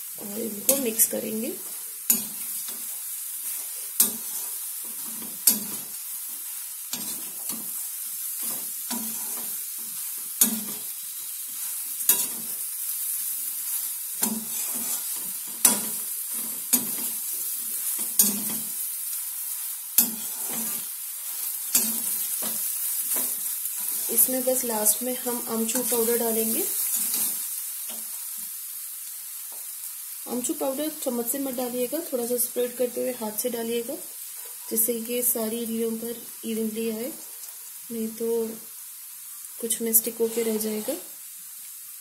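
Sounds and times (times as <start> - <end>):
oil sizzling: 0.0 - 42.0
metal spatula scraping and clinking: 3.5 - 5.8, 11.6 - 12.5, 14.2 - 17.2, 17.8 - 18.7, 20.0 - 24.3, 26.8 - 28.0.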